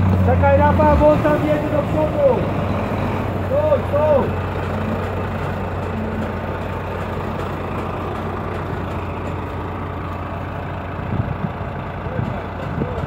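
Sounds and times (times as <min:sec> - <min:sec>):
car engine under heavy load: 0:00.0 - 0:13.0
low engine hum: 0:00.0 - 0:13.0.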